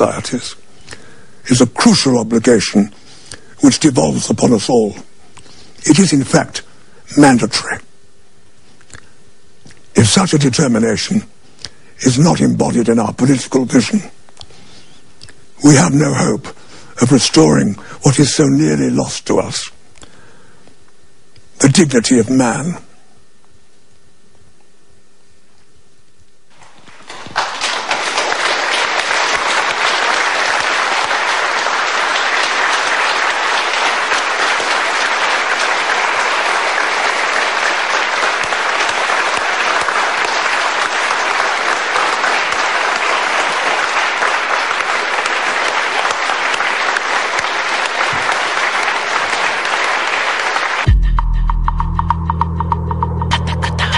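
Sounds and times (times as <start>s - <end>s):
faint hum: 0.0s - 53.9s
large audience applauding: 26.6s - 51.1s.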